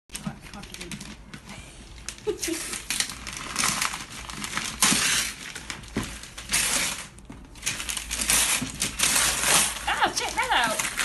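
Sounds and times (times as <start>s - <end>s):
paper and tape tearing: 2.2s - 11.0s.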